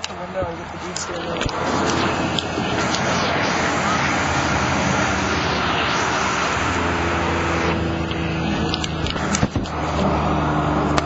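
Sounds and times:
tyres hissing on wet road: 0.0s - 11.0s
vehicle engine humming: 0.0s - 11.0s.

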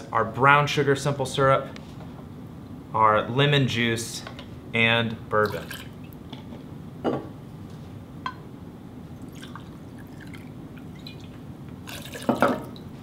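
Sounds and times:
liquid trickling: 5.5s - 6.2s, 9.2s - 13.0s.

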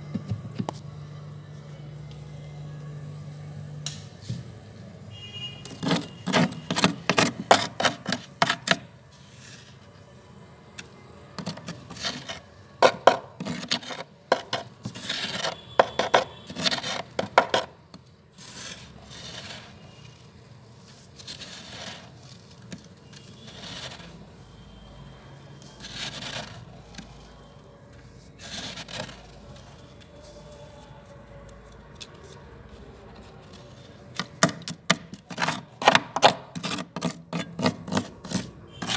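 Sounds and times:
fingernails scraping frost: 11.4s - 12.4s, 13.4s - 17.4s, 18.4s - 20.1s, 20.9s - 22.5s, 23.2s - 24.2s, 25.8s - 27.3s, 28.4s - 30.3s, 36.4s - 38.9s.

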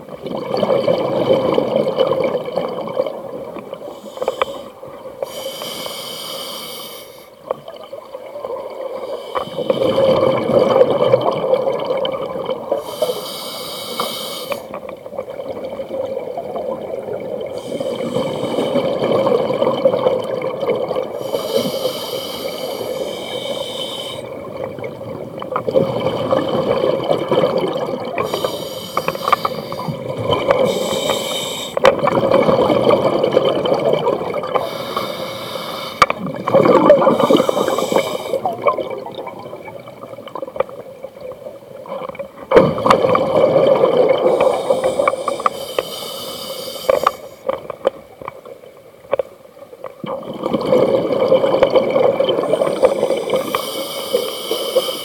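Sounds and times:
regulator inhale hiss: 3.9s - 7.4s, 9.0s - 9.9s, 12.8s - 14.8s, 17.6s - 18.9s, 21.2s - 24.3s, 28.2s - 30.0s, 30.6s - 31.8s, 34.6s - 36.2s, 37.1s - 38.5s, 44.2s - 47.5s, 52.5s - 55.0s
exhaust bubbles rushing: 36.2s - 37.8s.

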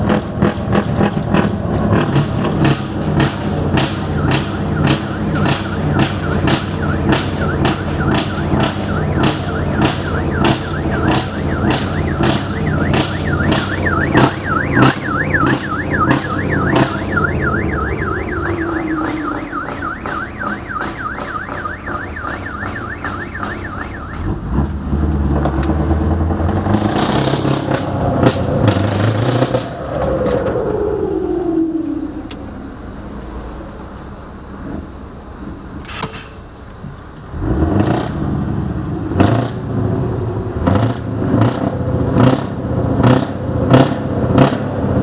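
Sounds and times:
truck engine running: 0.0s - 37.3s
falling whine: 3.4s - 24.4s, 27.4s - 33.4s
warbling alarm tone: 4.1s - 24.3s.

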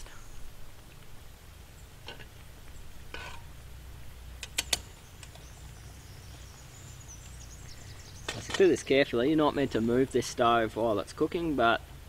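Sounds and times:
wooden spoon scraping pan: 3.2s - 3.5s.

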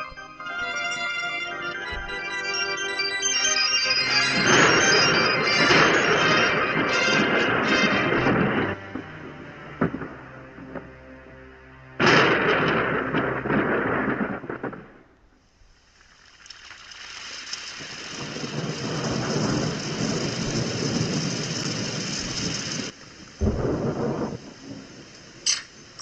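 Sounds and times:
rain hiss: 3.4s - 26.0s
thunder rumble: 4.0s - 15.9s, 17.8s - 26.0s.

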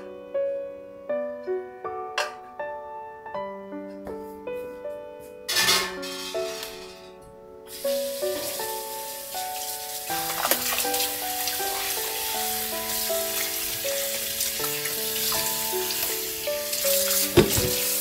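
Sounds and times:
background music: 0.0s - 18.0s
tap water splashing in sink: 10.1s - 12.1s, 12.9s - 18.0s.

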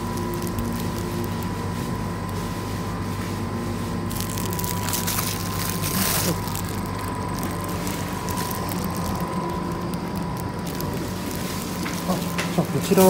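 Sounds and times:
refrigeration units humming: 0.0s - 13.0s
thin constant whine: 0.0s - 13.0s.

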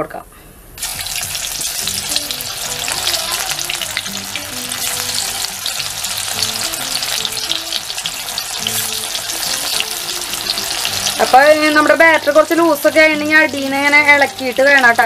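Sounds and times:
oil sizzling and crackling: 0.8s - 15.0s.

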